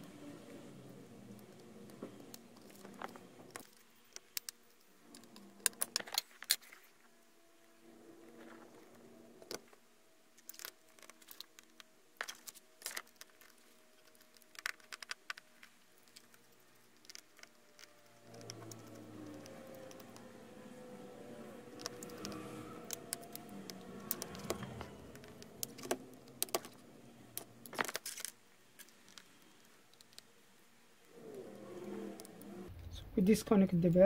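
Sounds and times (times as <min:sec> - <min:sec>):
hand tools clicking on tablet: 0:21.7 - 0:26.8.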